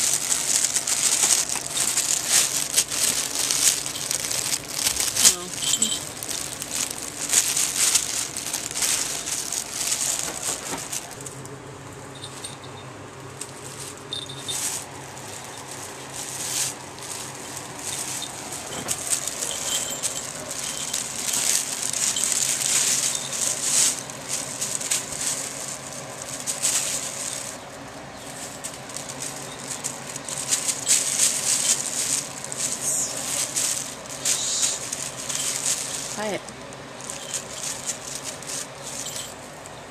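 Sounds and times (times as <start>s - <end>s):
plastic bag crinkling: 0.0s - 39.9s
small bells jingling: 0.0s - 39.9s.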